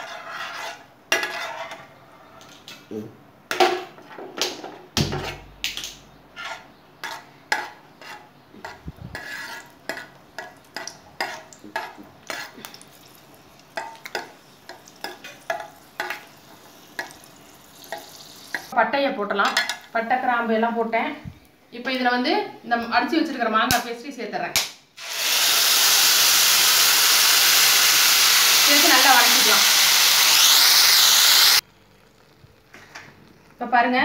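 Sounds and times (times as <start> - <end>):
frying sizzle: 9.6 - 18.8, 25.0 - 34.0.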